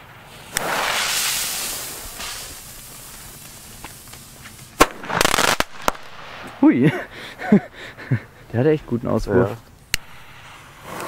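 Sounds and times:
firecracker bang: 0:00.0 - 0:06.8
rush of noise from firework: 0:00.0 - 0:06.8, 0:10.0 - 0:11.0
fuse hissing: 0:00.1 - 0:05.7, 0:10.0 - 0:11.0.

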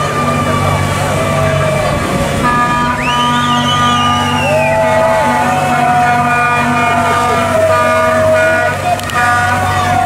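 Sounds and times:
boat engine running: 0:00.0 - 0:10.0
rising wavering whistle: 0:02.5 - 0:06.0.

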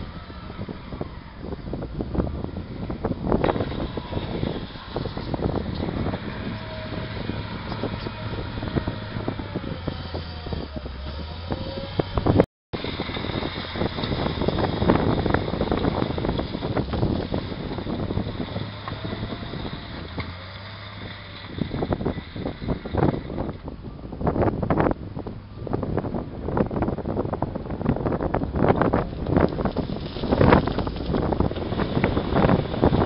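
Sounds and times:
wheel loader diesel engine: 0:00.0 - 0:33.0
wind buffeting microphone: 0:00.0 - 0:33.0
rubble being pushed: 0:29.1 - 0:32.2.

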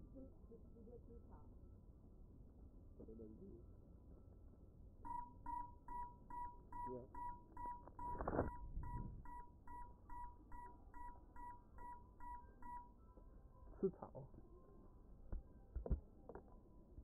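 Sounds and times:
buzzer beeping: 0:05.1 - 0:13.0.

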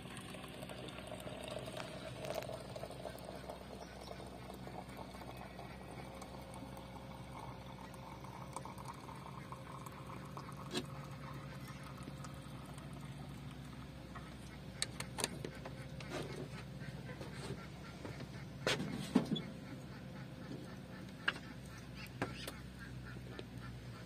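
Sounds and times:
water pouring into teapot: 0:00.0 - 0:13.9.

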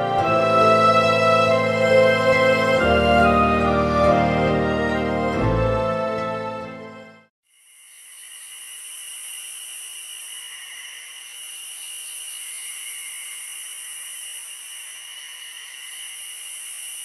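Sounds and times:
crickets and insects chirring: 0:07.4 - 0:17.0.

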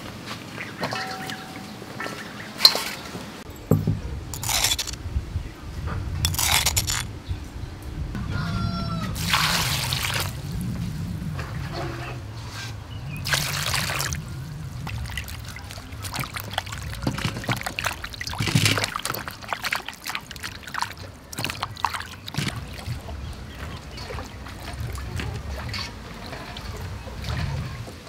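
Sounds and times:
water splashing in metal basin: 0:00.8 - 0:03.0, 0:09.2 - 0:10.4, 0:13.2 - 0:28.0
water rushing: 0:09.1 - 0:28.0.

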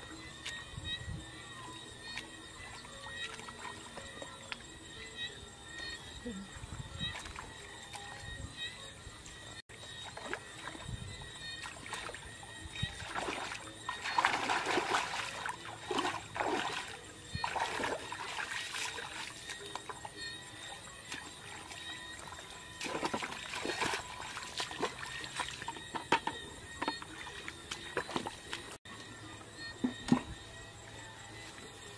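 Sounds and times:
splashing muddy water: 0:01.9 - 0:04.9, 0:09.8 - 0:28.8.

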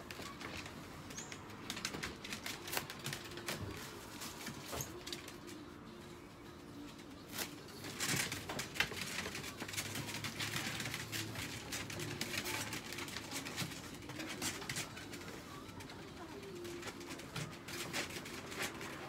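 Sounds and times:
plastic tray rustling and clattering: 0:07.3 - 0:15.9, 0:16.6 - 0:19.0.

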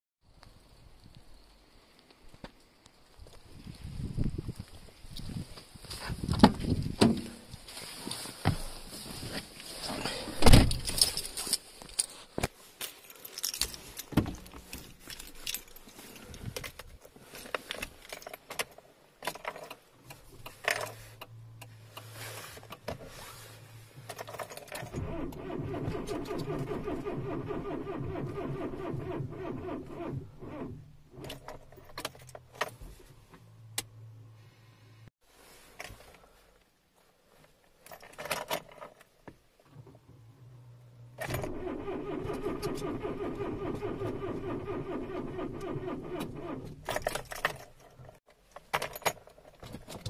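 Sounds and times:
keys jangling and clicking: 0:10.7 - 0:12.1, 0:12.8 - 0:16.9
starter cranking engine: 0:41.2 - 0:46.9.

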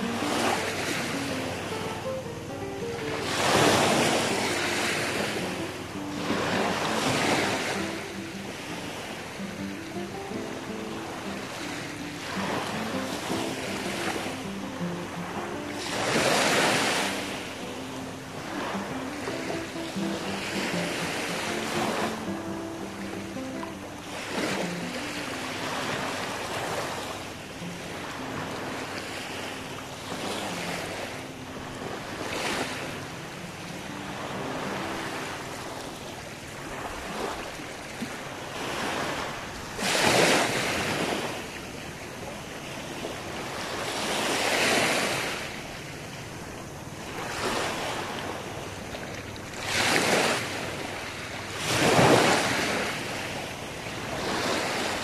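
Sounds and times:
waves breaking on shore: 0:00.0 - 0:55.0.

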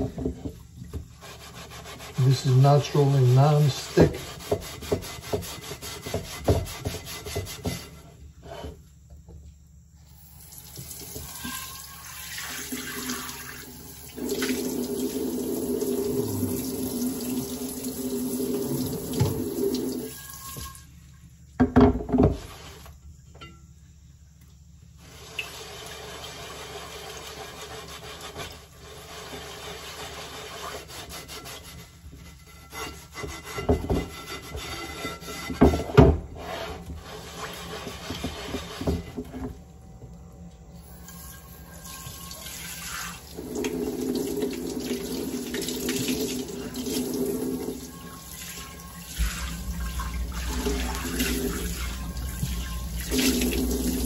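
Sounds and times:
scrubber rubbing on pan: 0:01.1 - 0:08.7, 0:25.0 - 0:39.5, 0:44.1 - 0:54.0
water rushing into sink: 0:10.2 - 0:20.9, 0:40.8 - 0:54.0.

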